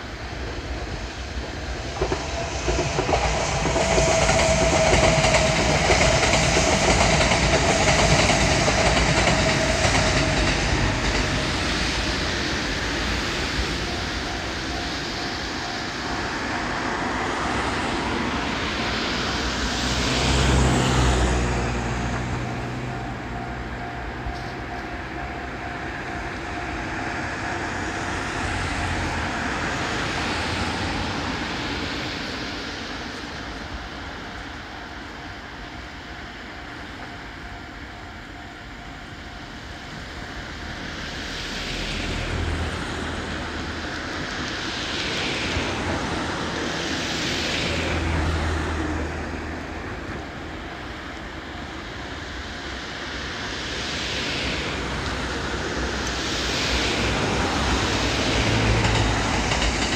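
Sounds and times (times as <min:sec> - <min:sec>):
train wheels clattering over rails: 0:00.0 - 0:34.4, 0:39.8 - 0:59.9
crossing warning bell ringing: 0:03.5 - 0:19.5, 0:20.9 - 0:30.0, 0:36.4 - 0:41.2.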